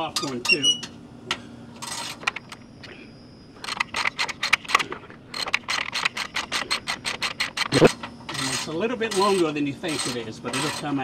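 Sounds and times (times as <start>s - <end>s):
socket ratchet clicking: 5.4s - 7.8s.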